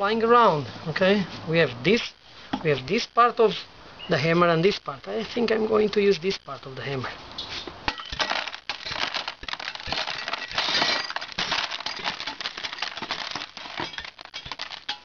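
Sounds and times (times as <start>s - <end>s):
glass fragments clinking and crunching: 7.9s - 15.0s.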